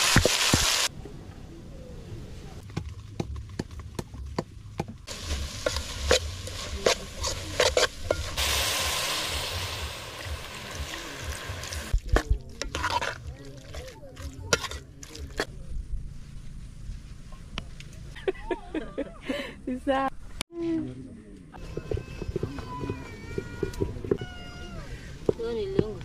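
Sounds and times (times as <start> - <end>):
food sizzling: 0.0 - 0.9, 5.1 - 13.2
metal spoon scraping a pot: 12.6 - 15.5.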